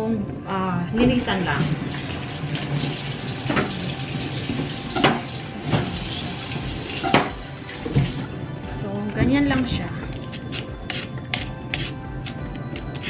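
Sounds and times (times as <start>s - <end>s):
water running from tap: 1.0s - 8.4s.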